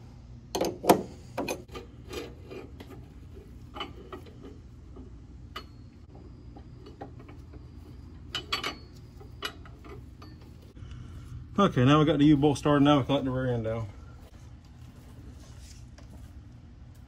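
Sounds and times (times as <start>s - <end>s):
steady low hum: 0.0s - 17.0s
metal clinks and taps: 5.5s - 10.7s.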